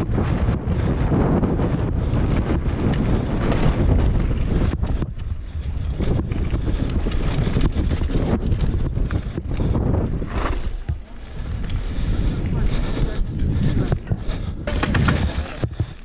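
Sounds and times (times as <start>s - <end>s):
wind buffeting microphone: 0.0s - 16.0s
bike knocking and rattling: 0.6s - 16.0s
tyres rolling on gravel: 3.4s - 16.0s.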